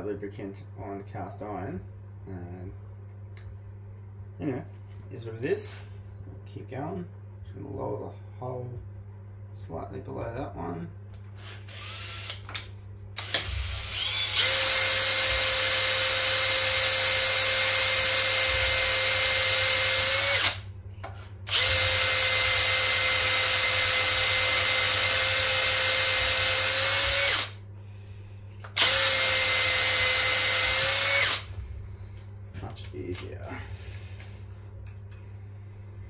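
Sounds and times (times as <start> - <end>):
cordless drill whining: 11.7 - 12.5, 13.2 - 20.6, 21.5 - 27.6, 28.8 - 31.5.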